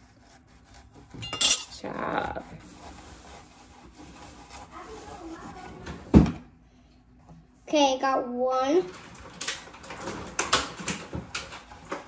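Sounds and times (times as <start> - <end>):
kitchen utensils clinking and scraping: 1.1 - 2.7.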